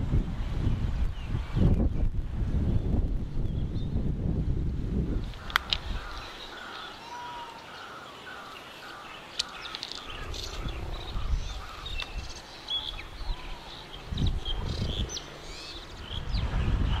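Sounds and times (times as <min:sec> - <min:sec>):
birds chirping: 0:05.1 - 0:17.0.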